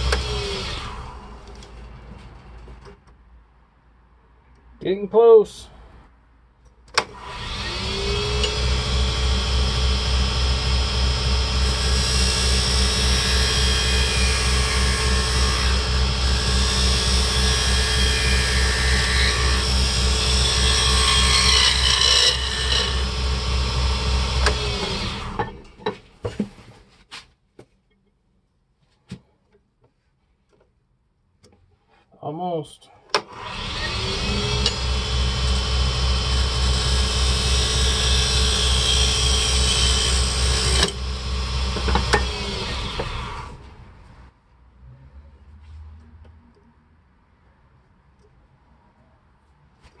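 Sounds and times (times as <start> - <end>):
lathe motor humming: 7.2 - 25.4, 33.5 - 43.8
lathe spinning down: 7.2 - 25.6, 33.4 - 43.8
cutter scraping wood: 11.6 - 25.7, 33.3 - 43.8.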